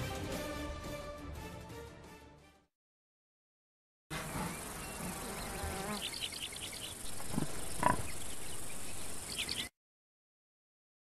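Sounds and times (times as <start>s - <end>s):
bird chirps: 4.2s - 9.7s
high insect buzz: 4.2s - 9.7s
sharp animal sounds: 4.2s - 9.7s.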